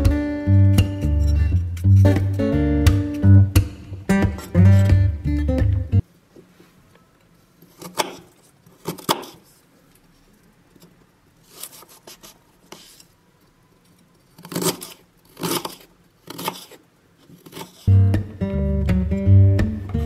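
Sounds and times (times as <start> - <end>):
knife cutting on a wooden board: 14.4 - 16.8, 17.4 - 17.9.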